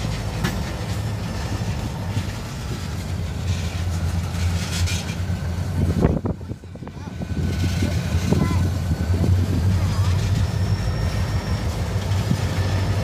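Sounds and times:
freight train wheels rumbling on rail: 0.0 - 13.0.

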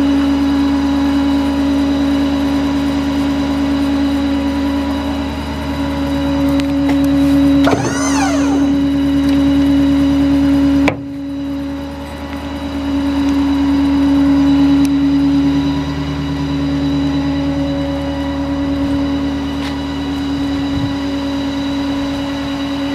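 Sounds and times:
truck engine idling: 2.3 - 20.5.

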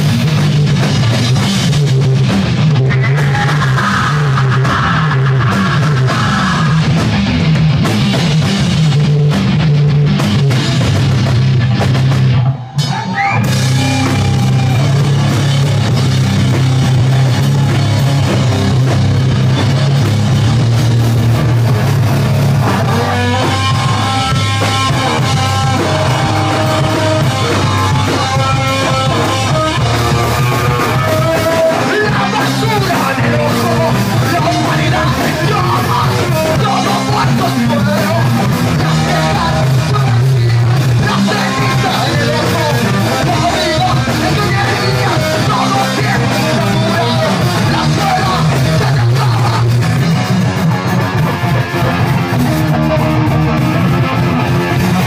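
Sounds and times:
drum kit: 0.0 - 55.0
electric guitar: 0.0 - 55.0
person singing into microphone: 22.9 - 50.1.

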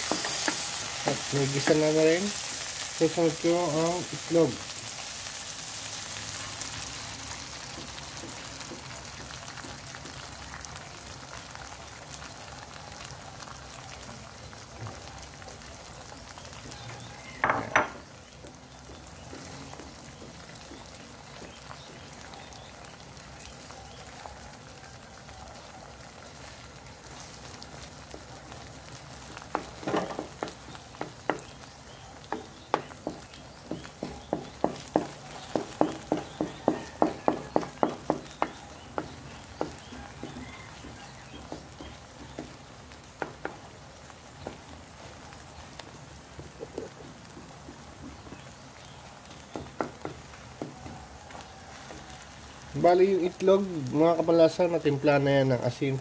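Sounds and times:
spatula tapping wok: 0.0 - 1.9, 6.9 - 10.7, 29.2 - 52.7
egg sizzling in a wok: 0.0 - 56.0.

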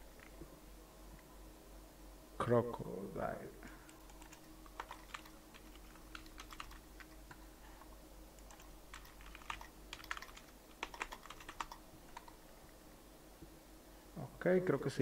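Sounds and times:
faint steady hum: 0.0 - 15.0
typing on computer keyboard: 3.9 - 7.4, 8.4 - 12.4.

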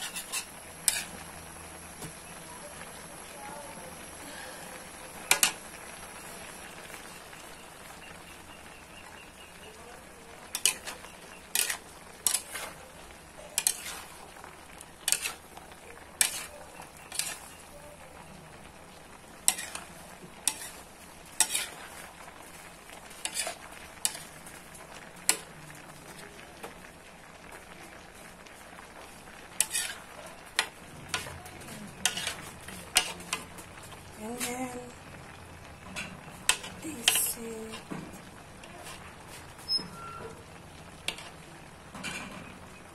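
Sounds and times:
metal utensils scraping a wok: 0.0 - 1.3, 10.4 - 17.7, 19.4 - 22.2, 23.1 - 24.4, 29.5 - 33.6, 35.9 - 37.8, 41.0 - 41.4
low frying hiss: 0.0 - 42.9.

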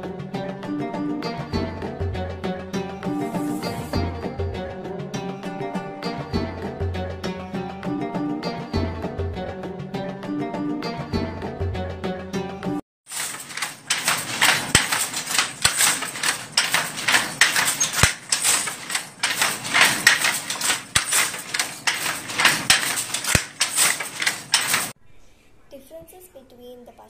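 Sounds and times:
handloom clacking: 13.1 - 25.0.

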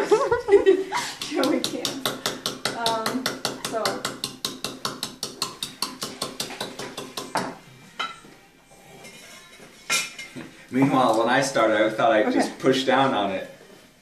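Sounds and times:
wooden pestle pounding in mortar: 1.2 - 7.6.

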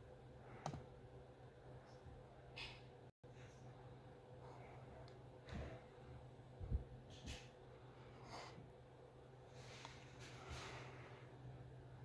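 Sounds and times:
ceiling fan motor hum: 0.0 - 12.0.

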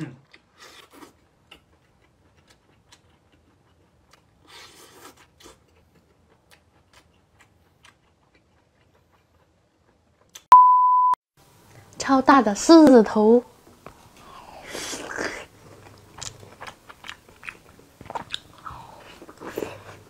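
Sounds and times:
chewing clicks: 15.8 - 18.7.

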